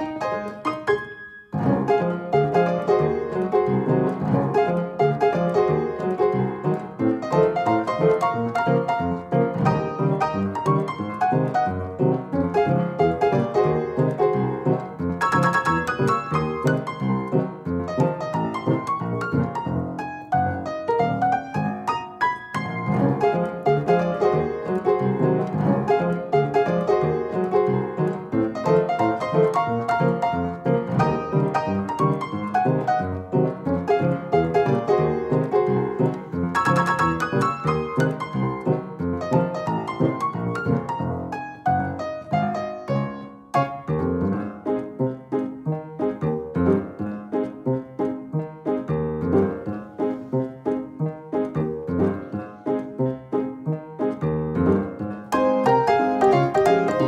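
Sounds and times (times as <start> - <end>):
instrumental music with quick notes: 0.0 - 57.0
light piano tune: 0.0 - 57.0.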